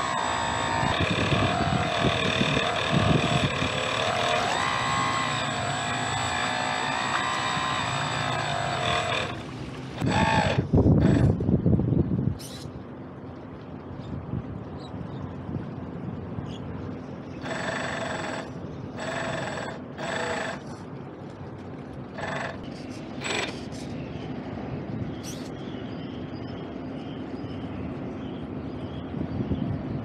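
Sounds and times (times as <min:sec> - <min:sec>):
small outboard motor running: 0:00.0 - 0:11.4, 0:17.4 - 0:20.9, 0:22.1 - 0:23.9.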